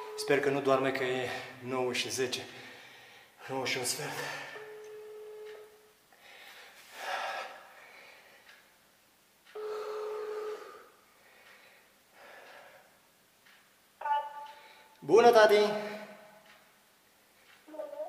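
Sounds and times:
phone ringback tone: 0:04.6 - 0:05.9, 0:09.6 - 0:10.8.

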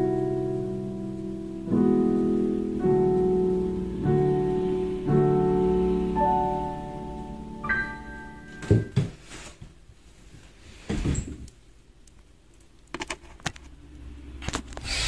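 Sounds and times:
piano notes: 0:00.0 - 0:09.3.

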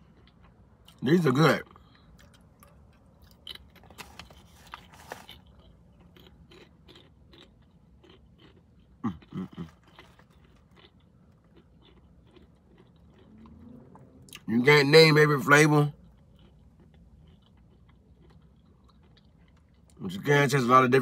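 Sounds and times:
chips crunching: 0:01.7 - 0:13.7.

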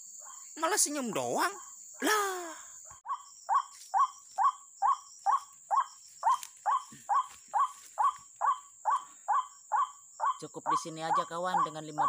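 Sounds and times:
high insect buzz: 0:00.0 - 0:12.0.

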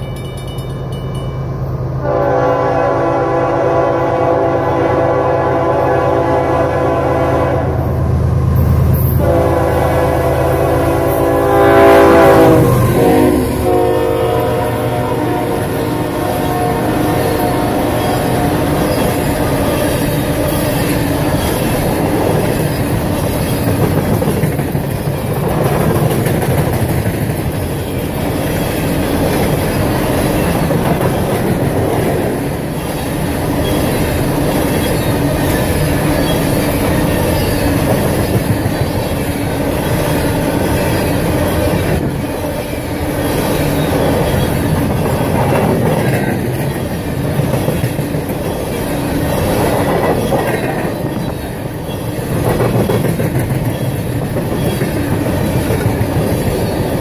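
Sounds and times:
train wheels clattering on rails: 0:15.4 - 0:57.0
wheel squeal: 0:33.5 - 0:40.1, 0:43.1 - 0:44.8, 0:49.8 - 0:55.1.

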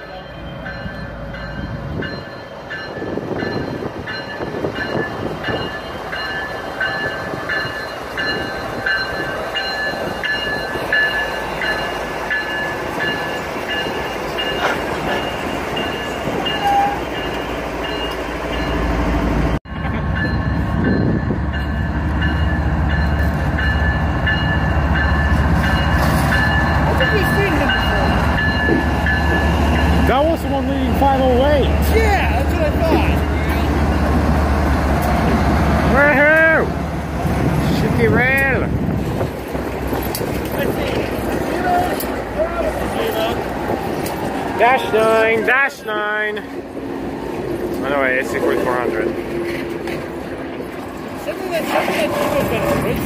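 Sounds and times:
train bell ringing: 0:00.0 - 0:35.1
diesel locomotive rumble: 0:00.0 - 0:53.0.

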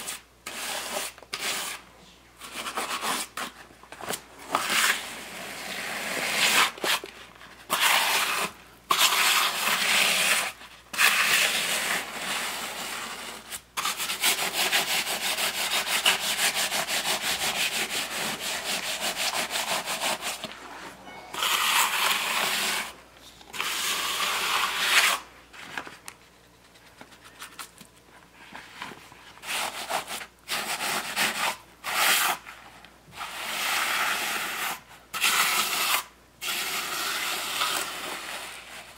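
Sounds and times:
trowel scraping wet concrete: 0:00.0 - 0:01.8, 0:04.5 - 0:07.1, 0:07.7 - 0:20.5, 0:21.4 - 0:22.9, 0:23.5 - 0:25.3.

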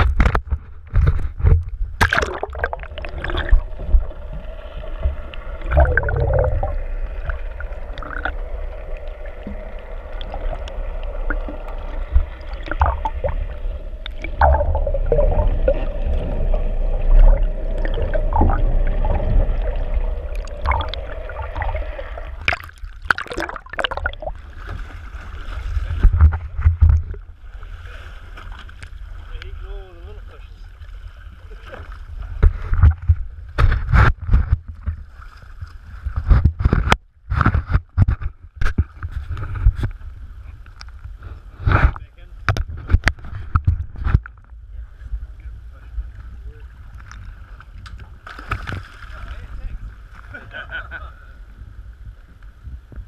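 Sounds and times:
low rumble: 0:00.0 - 0:27.9
underwater gurgling and rushing: 0:00.0 - 0:50.8
steady hum: 0:01.6 - 0:24.6
water splashing: 0:01.8 - 0:33.1, 0:46.9 - 0:50.3.

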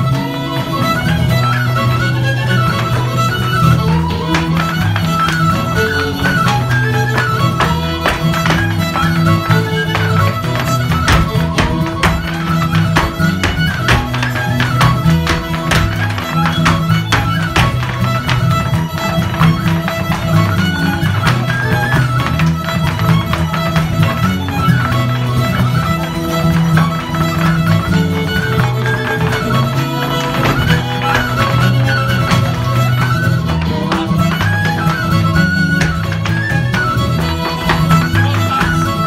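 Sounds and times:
dance shoes tapping: 0:00.0 - 0:39.0
fiddle playing lively tune: 0:00.0 - 0:39.0
guitar accompaniment: 0:00.0 - 0:39.0.

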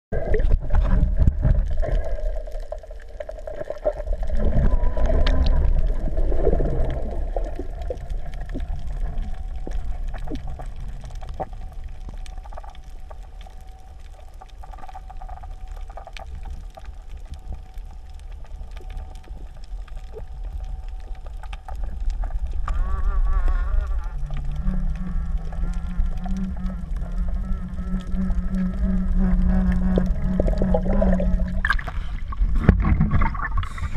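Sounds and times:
muffled underwater rumble of water: 0:00.1 - 0:33.9
steady low hum: 0:00.1 - 0:33.9.

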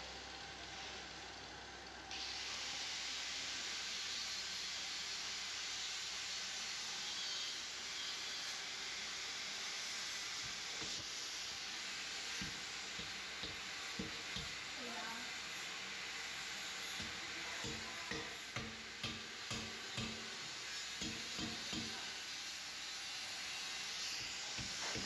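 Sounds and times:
steady hiss: 0:02.1 - 0:25.0.

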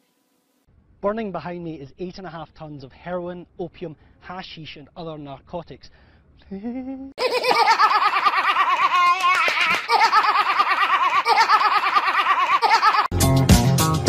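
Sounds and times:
man laughing: 0:06.4 - 0:13.1
girl laughing: 0:06.5 - 0:13.1
funky music with a beat: 0:13.1 - 0:14.0.

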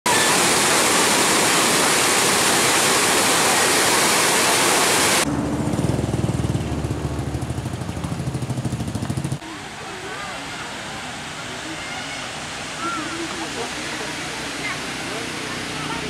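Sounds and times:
waterfall rushing: 0:00.1 - 0:05.3, 0:09.4 - 0:16.0
motorcycle engine chugging: 0:05.3 - 0:09.4.

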